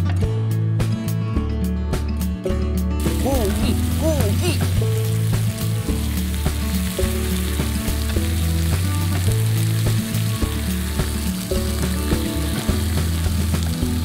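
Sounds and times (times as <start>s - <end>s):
background music with bass line: 0.0s - 14.0s
meat sizzling on a griddle: 3.0s - 14.0s.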